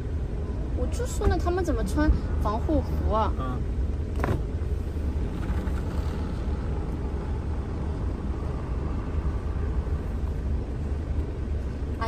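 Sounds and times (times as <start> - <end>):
engine idling: 0.0 - 12.0.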